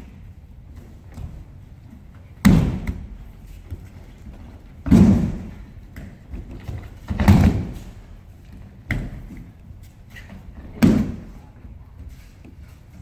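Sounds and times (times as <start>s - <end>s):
body thumping on mats: 2.4s - 8.0s.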